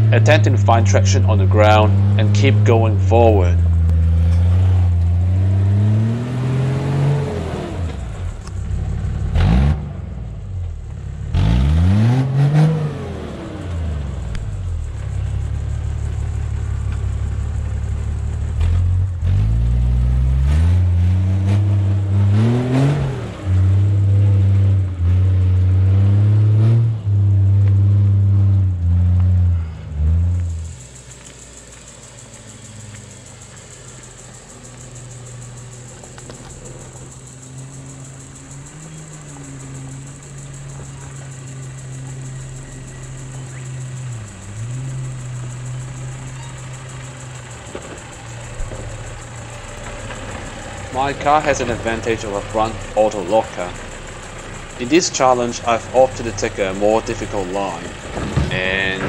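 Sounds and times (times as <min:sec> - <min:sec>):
engine revving up and down: 0:00.0 - 0:59.0.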